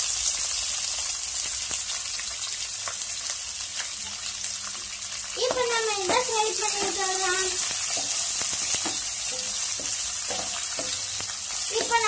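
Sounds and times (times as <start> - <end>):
onions sizzling in oil: 0.0 - 12.0
wooden spatula scraping a pan: 6.7 - 12.0.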